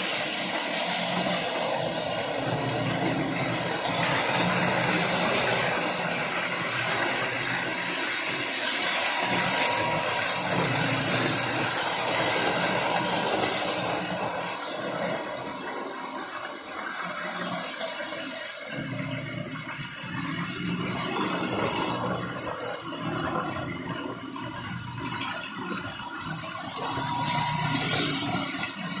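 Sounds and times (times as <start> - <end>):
model train wheels rattling: 0.0 - 18.3
electric motor hum: 0.0 - 25.1, 26.0 - 29.0.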